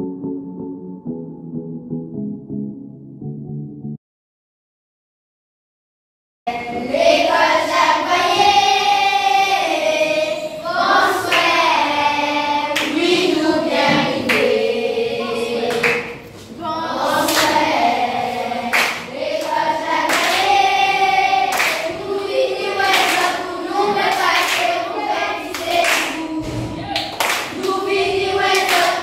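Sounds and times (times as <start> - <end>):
children singing: 6.5 - 29.0
handclaps: 11.3 - 11.5, 12.8 - 13.0, 14.2 - 14.6, 15.7 - 16.2, 17.2 - 17.6, 18.7 - 20.6, 21.5 - 22.0, 22.8 - 23.4, 24.0 - 24.8, 25.5 - 26.2, 26.9 - 27.8, 28.5 - 29.0.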